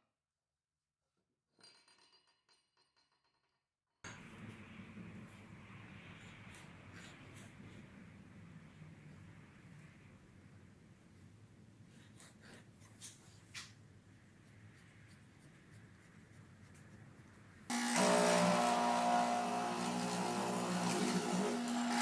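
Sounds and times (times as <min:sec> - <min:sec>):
pencil scratching on wood: 0:11.9 - 0:13.4
chisel boring into wood: 0:17.7 - 0:22.0
mortiser motor hum: 0:17.7 - 0:22.0.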